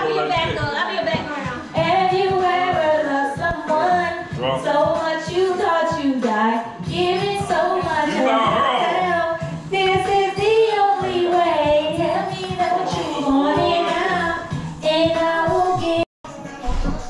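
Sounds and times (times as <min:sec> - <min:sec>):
woman singing into microphone: 0:00.0 - 0:16.1.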